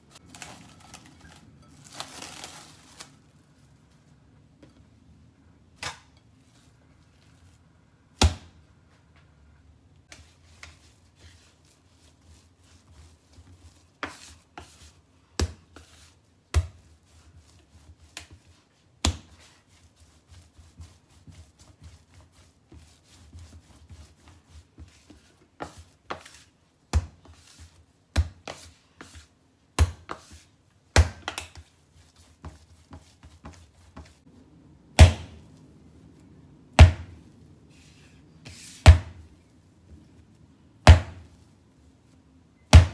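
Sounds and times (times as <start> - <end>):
dough squishing and rubbing: 0.0 - 9.2, 10.0 - 42.9
dough slapping on countertop: 5.8 - 6.6, 8.1 - 8.6, 10.0 - 34.3, 34.9 - 35.5, 36.7 - 37.3, 38.4 - 41.6.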